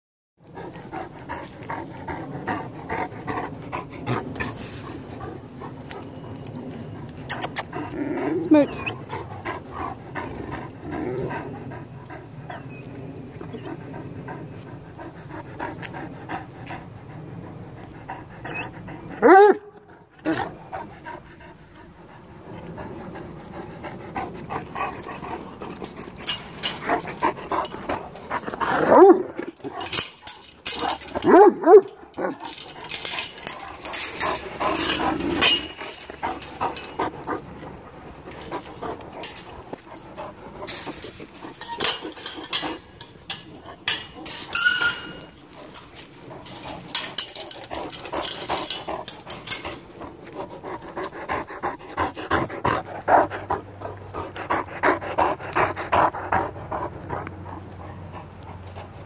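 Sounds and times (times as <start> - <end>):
dog panting: 0.4 - 44.4, 45.2 - 59.0
big dogs barking: 14.8 - 59.0
metal gate clinking and rattling: 24.8 - 51.0.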